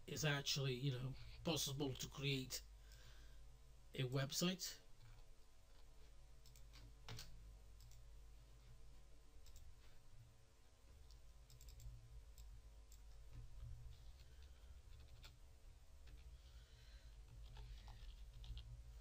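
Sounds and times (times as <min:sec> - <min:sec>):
low steady hum: 0:00.0 - 0:19.0
computer mouse clicks: 0:05.0 - 0:08.1, 0:09.4 - 0:09.7, 0:11.0 - 0:13.7.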